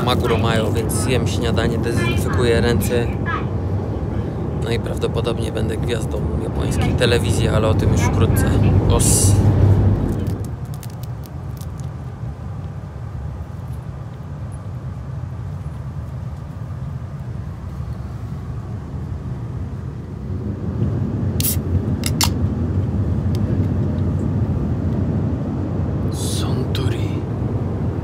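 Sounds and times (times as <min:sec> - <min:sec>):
train rumble inside carriage: 0:00.0 - 0:10.8.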